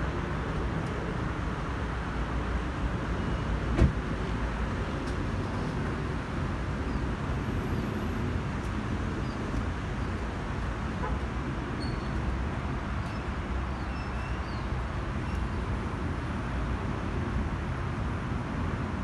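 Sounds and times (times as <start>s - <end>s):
jet engines rumbling overhead: 0.0s - 19.0s.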